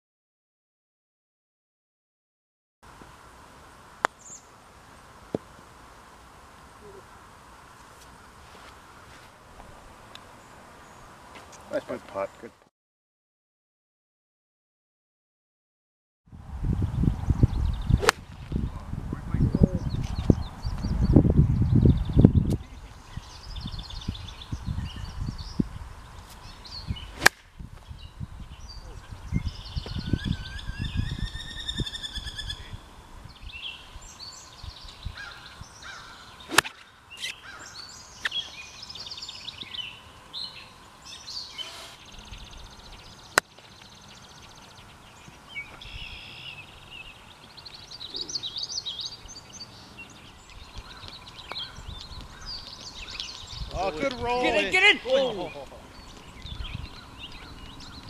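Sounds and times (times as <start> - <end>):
songbirds chirping and singing: 16.8 - 58.0
sharp cracks: 36.5 - 36.9.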